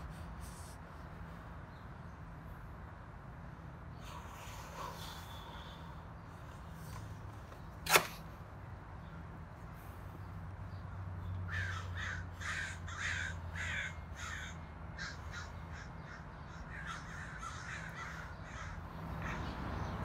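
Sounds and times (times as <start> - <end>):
crow cawing: 11.4 - 19.6.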